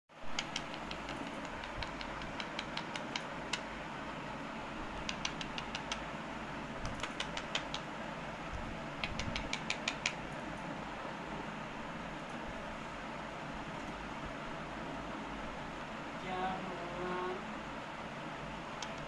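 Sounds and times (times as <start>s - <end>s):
beak tapping on glass screen: 0.3s - 3.7s, 5.0s - 6.0s, 6.8s - 7.9s, 9.0s - 10.2s.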